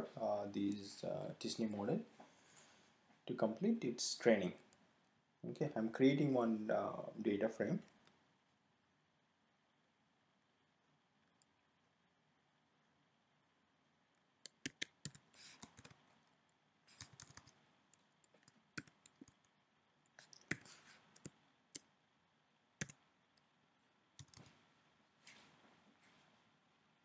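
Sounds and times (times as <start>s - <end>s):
keyboard and mouse clicking: 14.4s - 16.0s, 16.9s - 17.6s, 18.3s - 19.5s, 20.2s - 21.9s, 24.2s - 24.5s.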